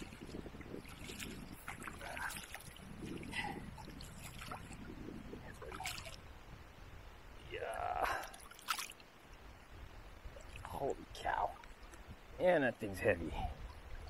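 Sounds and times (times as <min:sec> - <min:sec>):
water sloshing around kayak: 0:00.0 - 0:06.3, 0:08.1 - 0:09.3.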